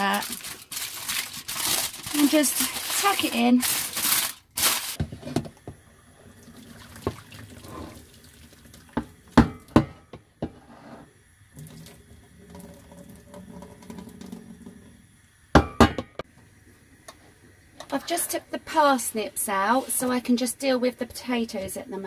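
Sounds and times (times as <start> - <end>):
water pouring into a steel sink: 6.1 - 9.4, 11.5 - 15.2.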